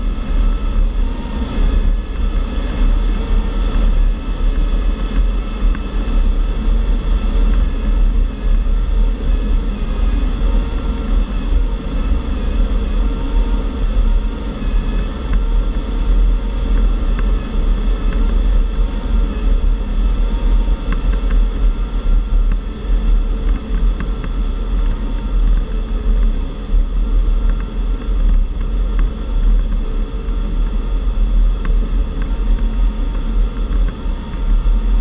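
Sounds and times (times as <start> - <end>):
rush of air over glider: 0.0 - 35.0.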